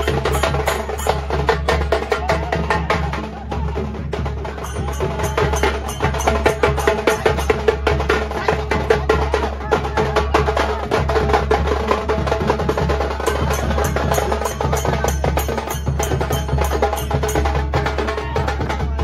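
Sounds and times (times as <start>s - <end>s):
fast clacking drumming: 0.0s - 19.0s
held tone: 4.6s - 7.7s.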